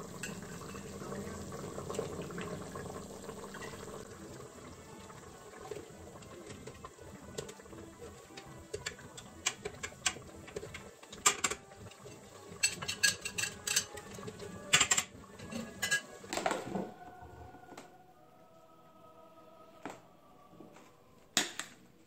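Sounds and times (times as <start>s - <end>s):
tongs clinking against pot: 11.2s - 14.1s.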